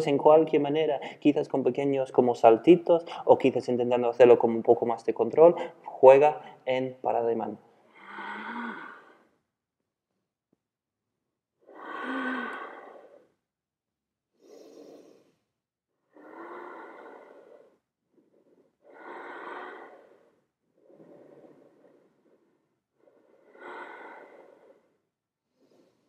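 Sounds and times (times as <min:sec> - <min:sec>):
person breathing heavily: 0:00.9 - 0:01.3, 0:03.0 - 0:03.3, 0:05.5 - 0:06.6, 0:07.9 - 0:09.4, 0:11.6 - 0:13.4, 0:14.4 - 0:15.4, 0:16.1 - 0:26.0.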